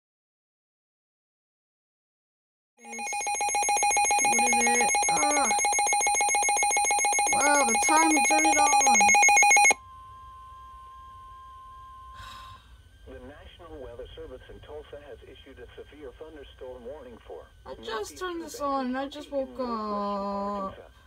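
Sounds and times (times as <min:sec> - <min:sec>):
rapidly pulsing alarm: 0:02.8 - 0:09.8
steady warning tone: 0:02.8 - 0:12.2
person speaking over radio: 0:04.3 - 0:05.6, 0:07.3 - 0:09.1.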